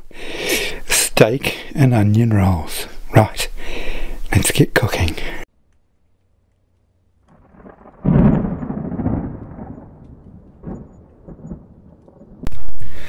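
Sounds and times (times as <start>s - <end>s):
boom with thunder-like rumble: 7.3s - 13.0s.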